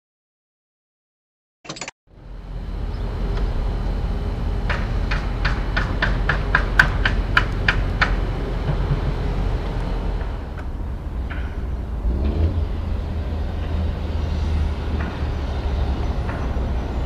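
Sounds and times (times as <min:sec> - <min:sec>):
low vehicle engine rumble: 0:02.1 - 0:17.0.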